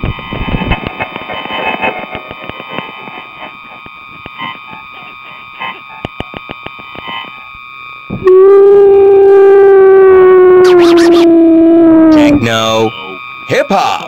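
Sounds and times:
glitchy electronic clicks: 0:00.4 - 0:07.5
high-pitched electronic tone: 0:08.1 - 0:14.0.

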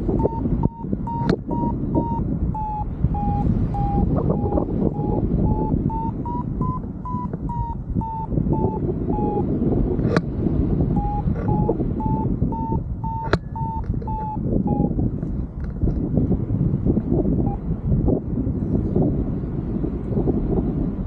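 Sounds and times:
variometer beeping: 0:00.0 - 0:15.8, 0:17.1 - 0:17.7
wind on microphone: 0:00.0 - 0:21.0
sharp clicks: 0:00.2 - 0:02.7, 0:11.0 - 0:14.4.

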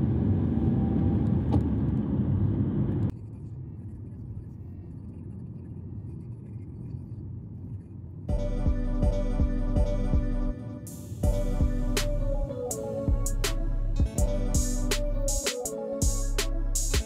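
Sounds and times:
car engine and tyre rumble: 0:00.0 - 0:06.2.

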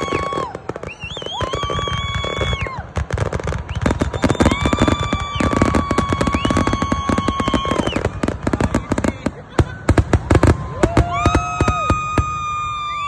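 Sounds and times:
fireworks crackling and popping: 0:00.0 - 0:13.0
high whistle-like tone: 0:00.7 - 0:02.6, 0:03.7 - 0:04.7.

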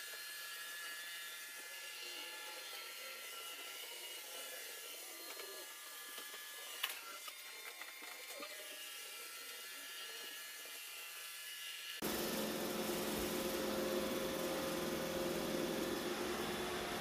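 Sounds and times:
constant motor whine: 0:12.0 - 0:17.0
robot vacuum running: 0:12.0 - 0:17.0.

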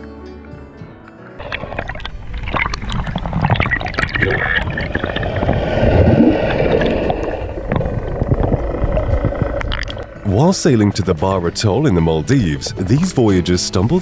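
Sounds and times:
water splashing and gurgling: 0:01.4 - 0:10.8
bubbles crackling: 0:01.4 - 0:11.0.

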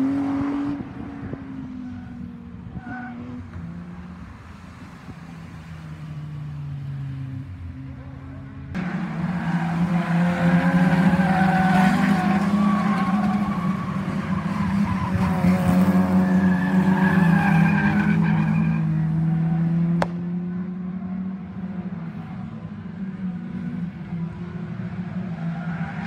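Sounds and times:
race car engines running hard: 0:00.0 - 0:26.0
tyres skidding on tarmac: 0:08.8 - 0:20.1, 0:24.8 - 0:26.0.

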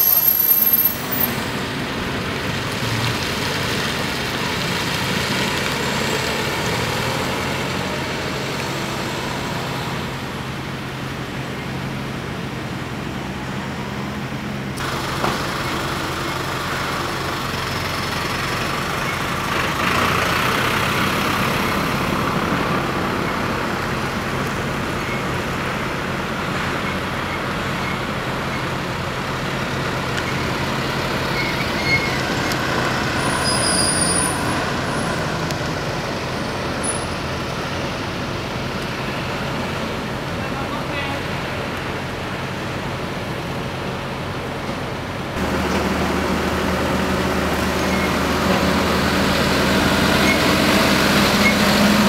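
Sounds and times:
high squeal: 0:00.0 - 0:01.6, 0:30.2 - 0:35.2, 0:49.8 - 0:52.0
road and traffic noise: 0:00.0 - 0:52.0
truck diesel engine driving past: 0:00.0 - 0:52.0.

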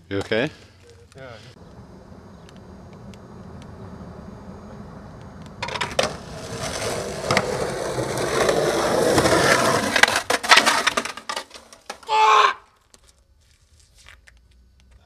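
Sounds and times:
skateboard wheels rolling on concrete: 0:00.0 - 0:15.0
skateboard clacks: 0:05.5 - 0:12.1.

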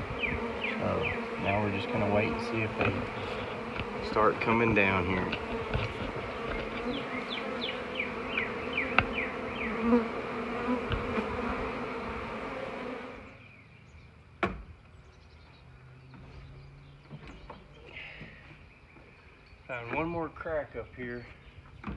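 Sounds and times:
bees buzzing: 0:00.0 - 0:13.5.

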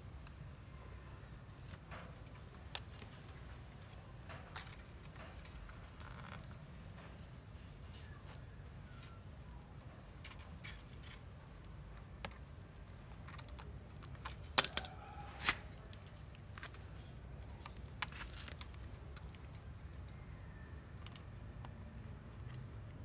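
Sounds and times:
light clicks and scrapes: 0:01.3 - 0:20.2
pliers twisting wire: 0:10.2 - 0:12.1.

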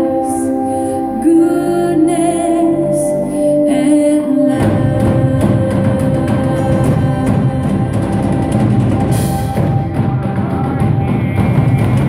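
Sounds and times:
sustained instrumental tones: 0:00.0 - 0:12.0
drum hits: 0:04.6 - 0:12.0.

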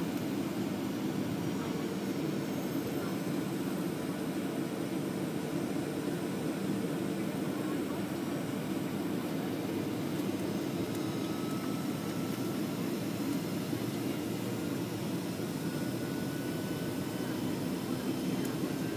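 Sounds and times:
jet engine cabin drone: 0:00.0 - 0:18.9
faint high whine: 0:01.4 - 0:18.9.

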